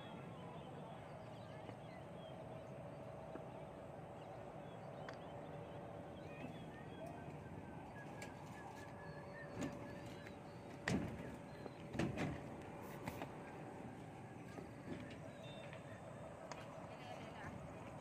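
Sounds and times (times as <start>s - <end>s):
faint bird chirps: 0.1s - 11.9s.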